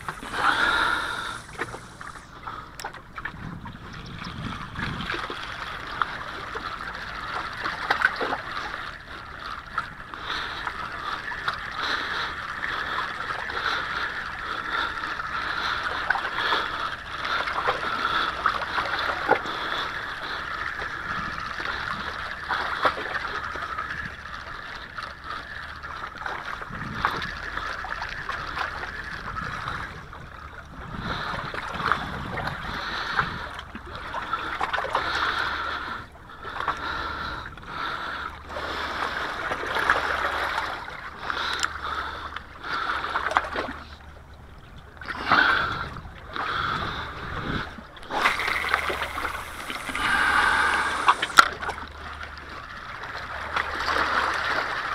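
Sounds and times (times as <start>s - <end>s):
waves splashing against rocks: 0.0s - 3.3s, 45.2s - 51.9s.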